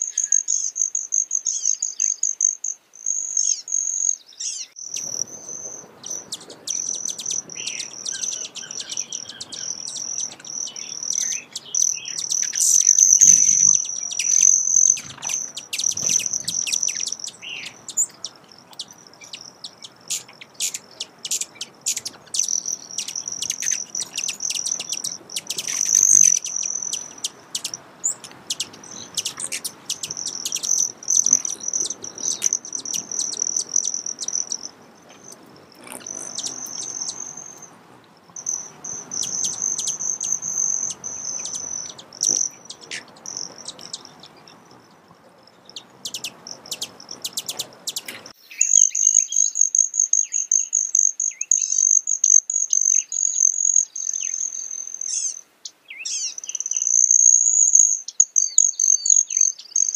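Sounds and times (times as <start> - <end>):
hummingbird wing trill: 4.5 - 44.9, 45.8 - 49.1.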